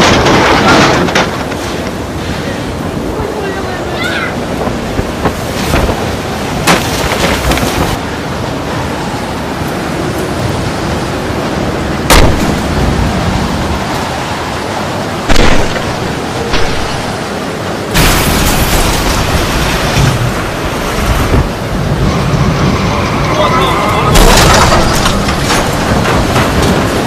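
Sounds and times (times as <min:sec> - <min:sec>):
sharp bangs: 0:12.1 - 0:12.8, 0:15.3 - 0:17.2.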